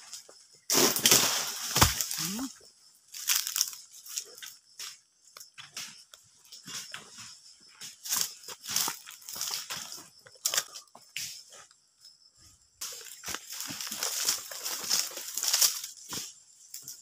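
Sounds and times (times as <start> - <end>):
rustling and crunching dead fronds: 0.1 - 2.5, 3.1 - 4.7, 8.0 - 10.9, 12.8 - 17.0.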